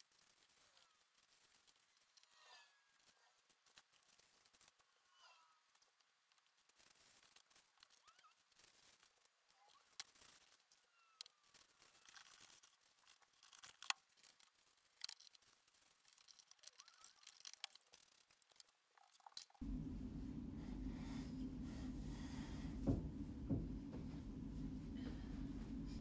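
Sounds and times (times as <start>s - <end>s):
tissue paper rustling: 6.4s - 18.4s
steady low rumble: 19.6s - 26.0s.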